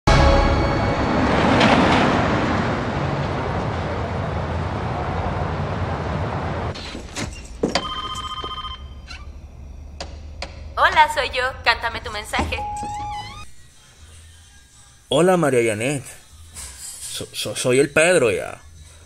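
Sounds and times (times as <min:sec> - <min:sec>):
door unlocking and opening: 0:12.6 - 0:13.5
short electronic tone: 0:12.6 - 0:13.6.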